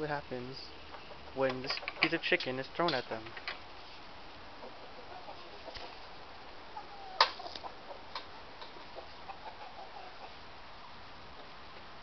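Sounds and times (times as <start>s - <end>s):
hens clucking softly: 0.7s - 2.1s, 3.8s - 10.5s.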